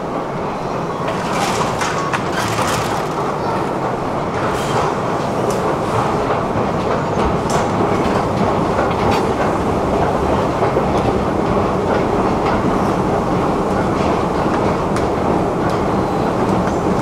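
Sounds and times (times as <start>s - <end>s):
loud mechanical rumble: 0.9s - 5.4s.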